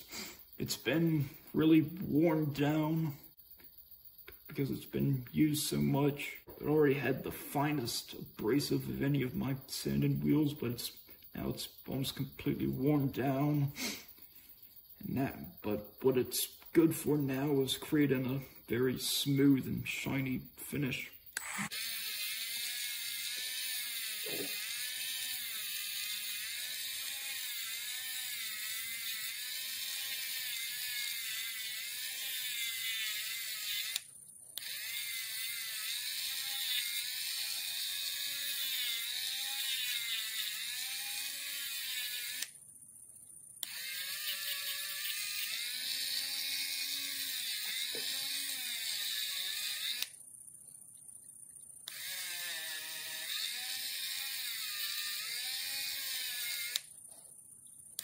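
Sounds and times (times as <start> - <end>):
rotary tool whining on metal: 21.3 - 42.6, 43.6 - 50.2, 51.8 - 56.9.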